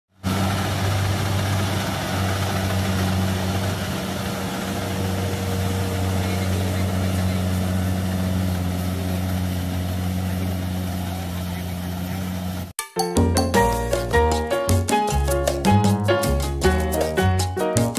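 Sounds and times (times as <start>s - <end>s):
diesel engine droning under load: 0.2s - 12.7s.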